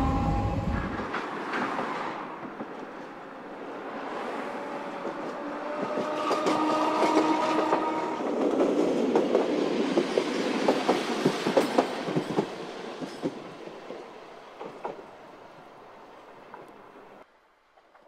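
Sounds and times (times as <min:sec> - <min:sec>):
streetcar hum: 0:00.0 - 0:09.7.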